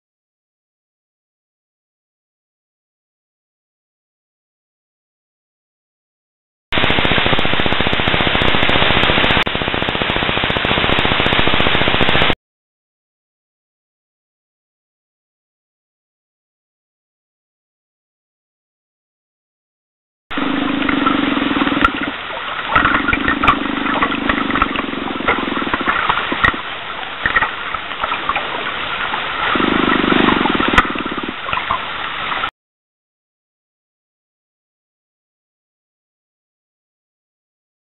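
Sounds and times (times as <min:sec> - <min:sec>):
hydrophone hiss: 0:06.8 - 0:12.3, 0:20.3 - 0:32.5
steady low hum: 0:20.3 - 0:32.5
sonar clicks underwater: 0:20.4 - 0:28.5, 0:29.5 - 0:31.9.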